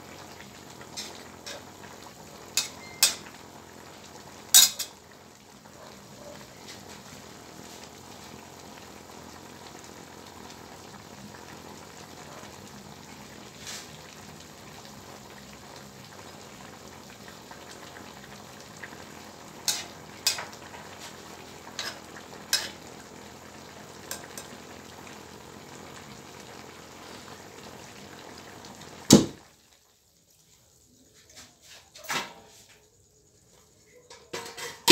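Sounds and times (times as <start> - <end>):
vegetables sizzling in a wok: 0.0 - 34.9
metal spatula clinking on pan: 2.6 - 3.2, 4.6 - 5.0.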